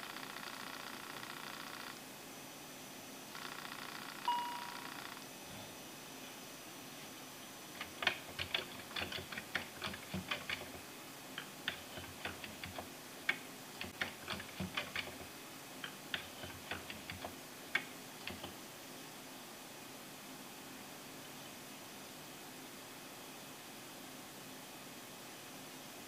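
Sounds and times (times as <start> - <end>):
keyboard keys clicking: 7.8 - 10.8, 11.4 - 18.6.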